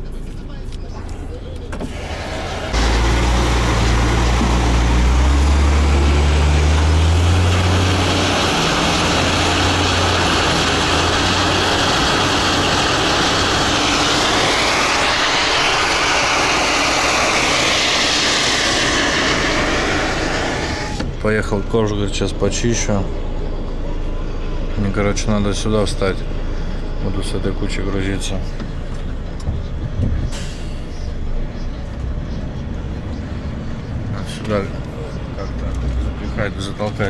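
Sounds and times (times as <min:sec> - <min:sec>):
wheel loader and quarry machinery: 0:00.0 - 0:37.0
truck diesel engine revving: 0:01.8 - 0:29.4, 0:30.3 - 0:37.0
rising and falling whine: 0:01.8 - 0:29.8.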